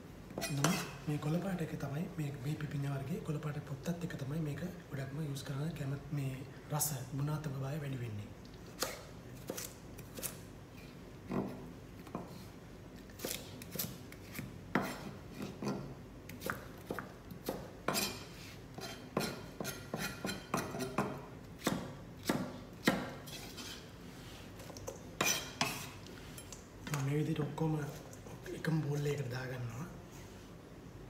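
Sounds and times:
knife chopping on cutting board: 0:08.8 - 0:10.4, 0:13.2 - 0:15.8, 0:16.4 - 0:18.2, 0:18.8 - 0:23.8.

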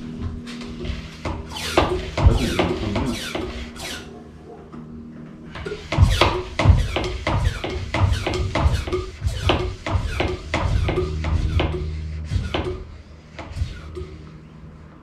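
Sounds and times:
low steady hum: 0:09.4 - 0:15.0.

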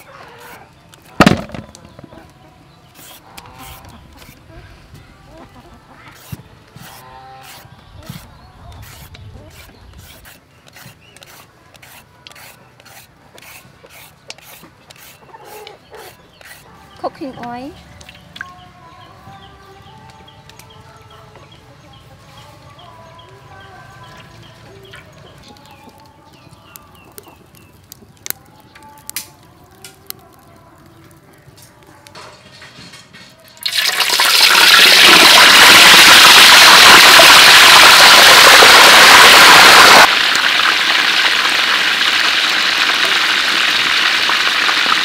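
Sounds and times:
small birds chirping: 0:00.0 - 0:31.7
firewood cracking: 0:00.9 - 0:02.4, 0:25.3 - 0:31.9, 0:33.6 - 0:45.0
chickens clucking: 0:01.6 - 0:19.5, 0:24.0 - 0:27.7
peeler blade rasping on carrot: 0:06.1 - 0:16.7.

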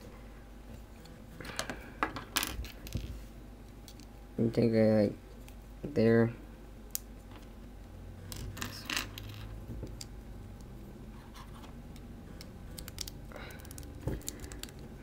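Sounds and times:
low steady hum: 0:00.0 - 0:15.0
plastic parts clicking: 0:12.4 - 0:14.9.

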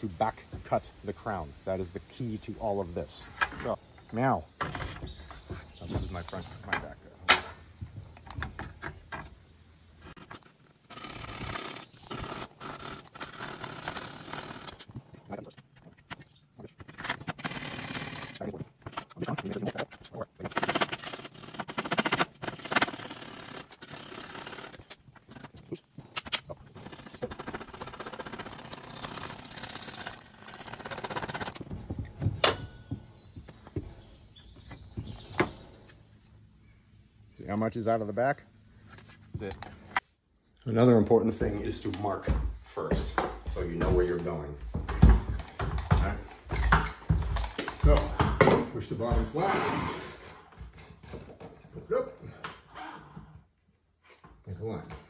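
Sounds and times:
coping saw rasping: 0:20.5 - 0:25.7.

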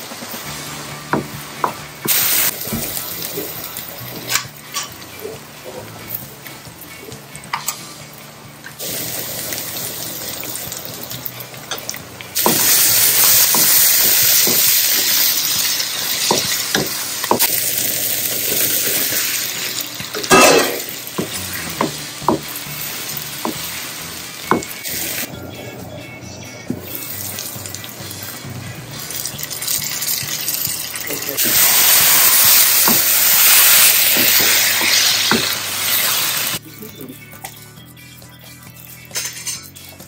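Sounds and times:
onions sizzling in oil: 0:00.0 - 0:04.9, 0:08.8 - 0:25.3, 0:26.8 - 0:36.6.

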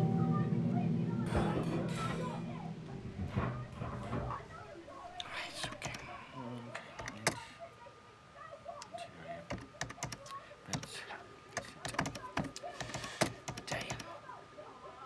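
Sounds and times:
keyboard keys clicking: 0:07.0 - 0:07.4, 0:09.5 - 0:10.9, 0:11.6 - 0:14.1.

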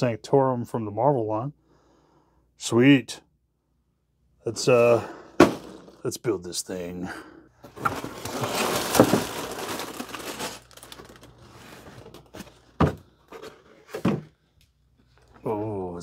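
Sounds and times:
plastic bags rustling: 0:05.4 - 0:06.0, 0:07.6 - 0:14.1
cardboard rustling and tearing: 0:07.7 - 0:14.1.

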